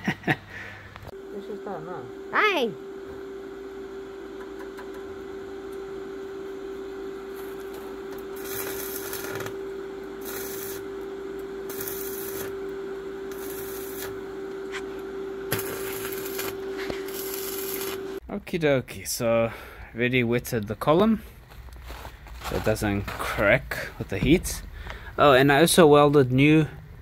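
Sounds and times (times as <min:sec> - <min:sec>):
steady hum: 0:00.0 - 0:27.0
welding arc crackling and hissing: 0:07.1 - 0:18.2.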